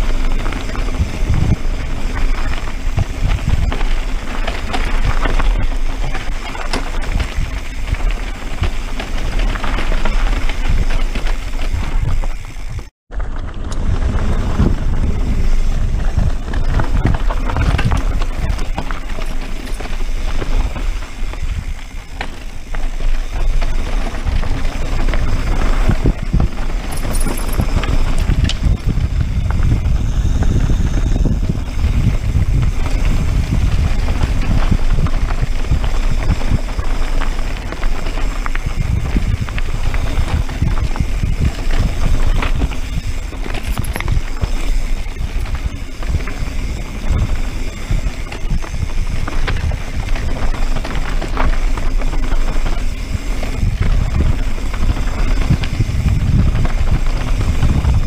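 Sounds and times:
bike knocking and rattling: 0.0 - 58.0
tyres crunching on dirt: 0.0 - 58.0
wind buffeting microphone: 0.0 - 58.0.

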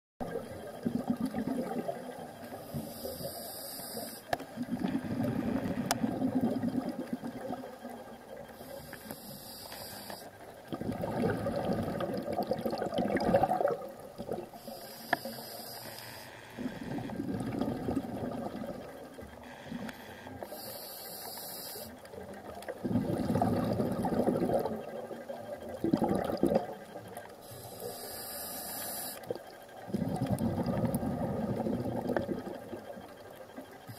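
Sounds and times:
exhaled bubbles rushing: 0.3 - 2.1, 4.6 - 7.6, 10.7 - 14.5, 16.9 - 18.9, 22.8 - 25.0, 25.7 - 26.8, 29.9 - 32.7
regulator hiss on inhale: 2.4 - 6.4, 8.5 - 10.5, 14.5 - 22.3, 27.2 - 33.9.

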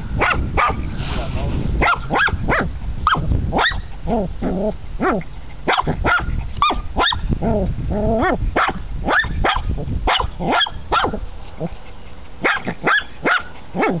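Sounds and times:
small dog yapping: 1.8 - 11.2, 12.4 - 14.0.

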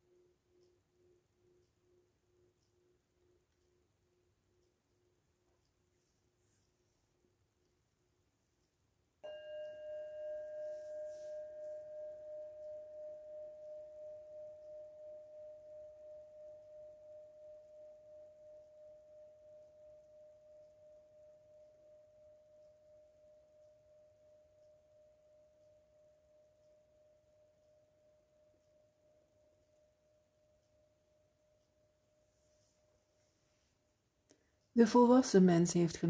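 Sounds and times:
metal singing bowl ringing: 9.2 - 29.0.

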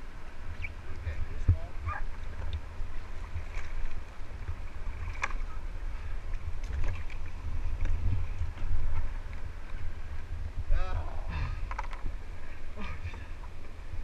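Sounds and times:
kayak bumping against rocks: 11.6 - 12.2.

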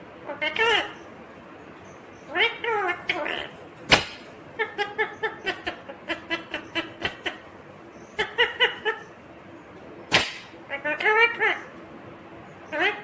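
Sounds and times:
parakeet laughing calls: 0.3 - 1.0, 2.2 - 9.2, 10.1 - 11.7, 12.7 - 13.0
sharp click: 3.9 - 4.2, 10.1 - 10.6.

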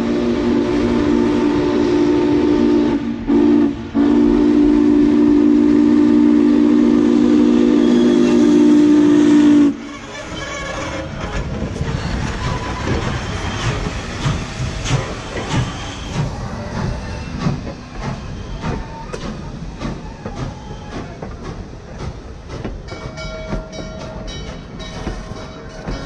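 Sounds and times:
steam train rolling past: 0.0 - 26.0
wheel clanks over rail joints: 9.9 - 26.0.

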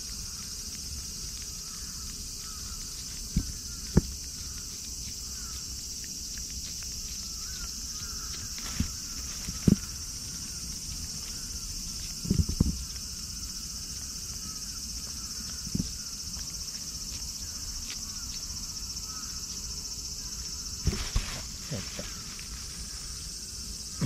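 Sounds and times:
insects chorus: 0.0 - 24.0
dull bumps: 20.8 - 22.2.

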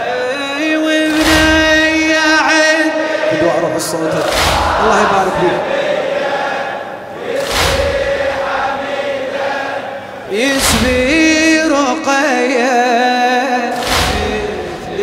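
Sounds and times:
men chanting a lament: 0.0 - 15.0
chest striking thuds: 4.2 - 5.1, 7.4 - 8.5.

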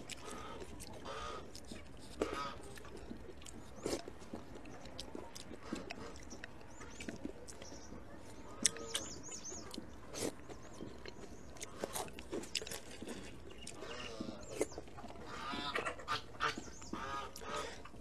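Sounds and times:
wet chewing and slurping: 0.0 - 18.0
bird chirping: 6.0 - 17.7.

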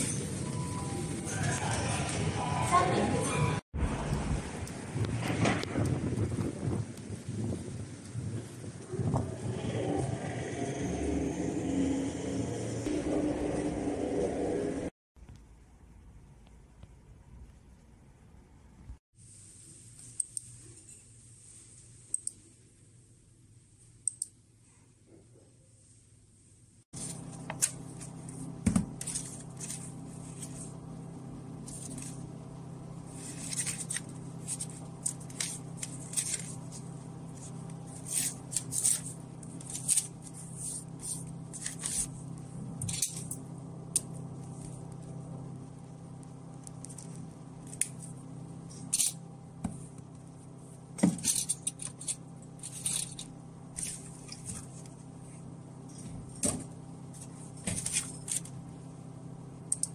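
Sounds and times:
steady low hum: 0.0 - 59.9
paper rustling and crinkling: 27.0 - 30.8, 33.1 - 42.2.

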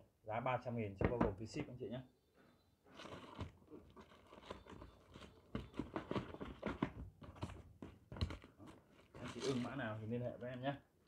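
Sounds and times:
rustling of packaging: 2.8 - 10.7.

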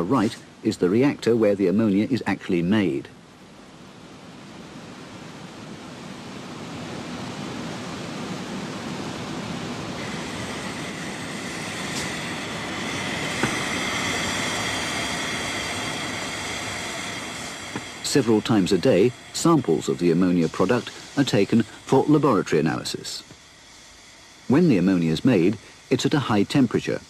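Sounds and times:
high steady whine: 0.0 - 27.0
machinery rushing noise: 8.3 - 27.0.

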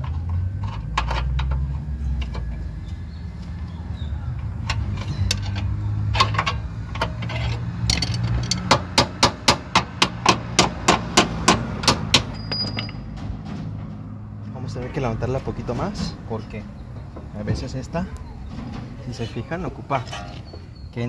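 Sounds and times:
metal tools clinking: 4.3 - 8.7, 12.2 - 14.0, 18.1 - 20.9
sharp metal taps: 4.4 - 14.0.

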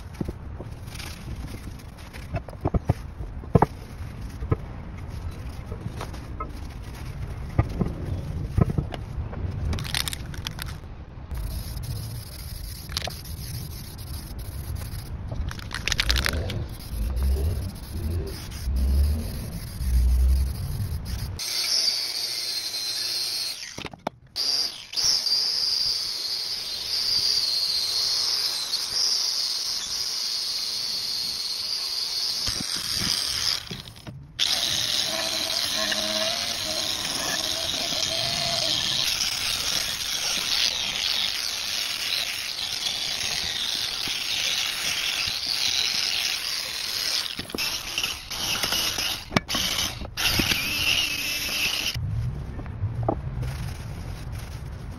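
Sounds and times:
angle grinder whining: 16.1 - 52.0
low rumbling and knocking: 52.0 - 54.9.

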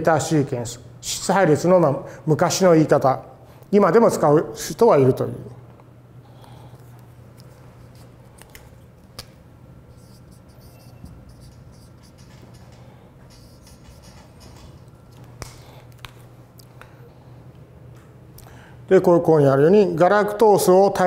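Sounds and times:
low room hum: 0.0 - 21.0
marker squeaking on whiteboard: 9.9 - 12.7, 13.3 - 14.9.

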